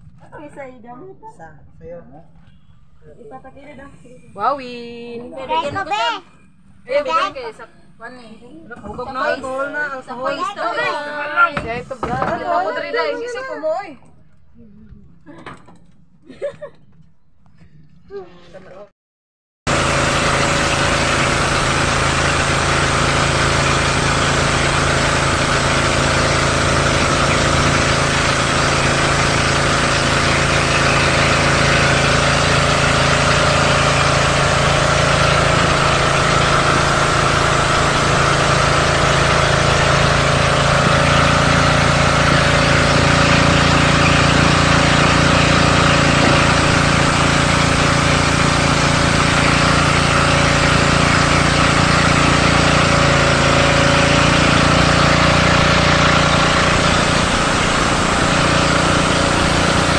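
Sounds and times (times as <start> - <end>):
motorboat engine running: 19.7 - 59.9
water hissing: 19.7 - 59.9.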